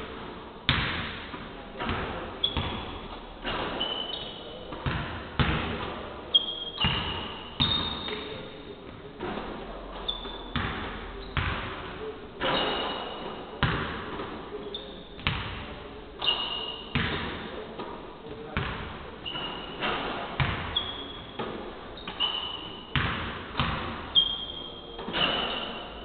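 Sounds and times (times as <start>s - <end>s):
basketball bouncing on hardwood: 0.7s - 1.1s, 10.5s - 11.7s, 16.9s - 17.4s, 18.6s - 18.9s, 19.8s - 21.5s, 22.9s - 24.0s
sneakers squeaking: 0.7s - 26.0s.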